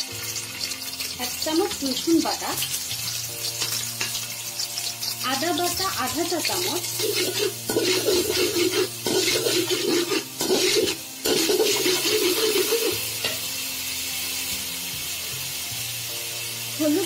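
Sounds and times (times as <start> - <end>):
paste sizzling in hot oil: 0.0 - 17.0
metal spoon scraping pan: 6.6 - 13.4.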